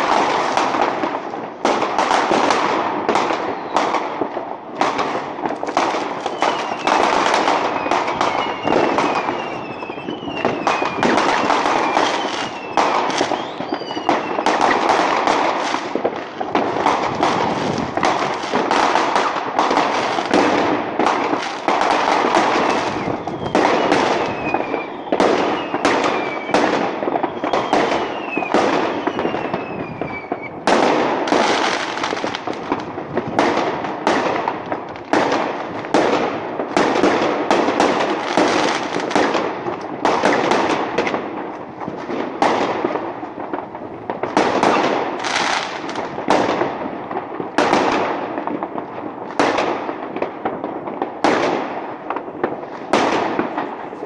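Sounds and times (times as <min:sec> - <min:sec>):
fireworks bangs and crackles: 0:00.0 - 0:54.0
falling firework whistles: 0:02.0 - 0:04.2, 0:04.8 - 0:16.2, 0:16.8 - 0:33.6, 0:36.8 - 0:39.4, 0:44.4 - 0:46.0.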